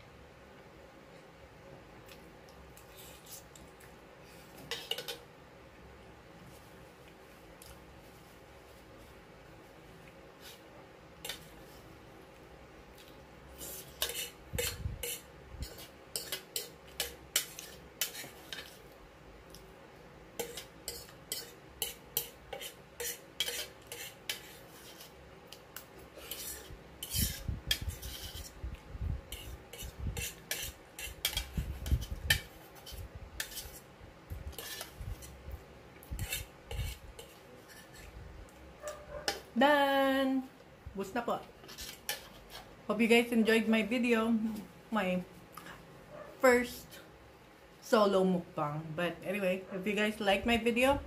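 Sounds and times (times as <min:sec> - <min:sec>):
cutlery scraping a bowl: 0:04.5 - 0:05.2, 0:11.2 - 0:11.6, 0:13.6 - 0:18.8, 0:20.4 - 0:28.6, 0:29.3 - 0:33.9, 0:34.5 - 0:35.4, 0:36.0 - 0:38.2, 0:41.6 - 0:42.7.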